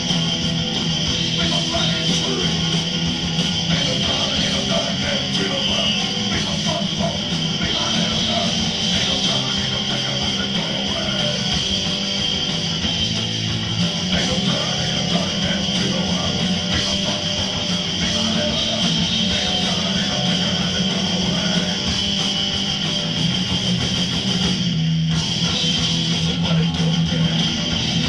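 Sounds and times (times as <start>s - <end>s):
distorted electric guitar: 0.0s - 28.0s
punk rock band playing live: 0.0s - 28.0s.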